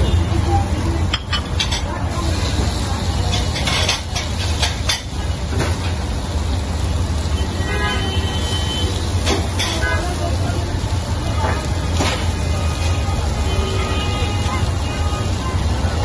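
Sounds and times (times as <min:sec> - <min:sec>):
meat frying on a griddle: 0:00.0 - 0:16.0
sharp clicks and knocks: 0:03.3 - 0:06.1.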